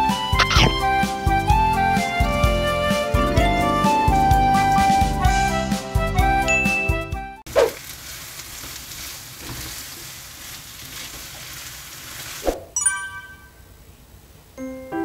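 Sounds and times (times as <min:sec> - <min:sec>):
light music: 0:00.0 - 0:07.4, 0:14.6 - 0:15.0
high chime notes: 0:06.5 - 0:07.1, 0:12.8 - 0:13.7
potatoes sizzling in frying pan: 0:07.5 - 0:12.6
brief swish: 0:07.6 - 0:07.8, 0:12.4 - 0:12.7.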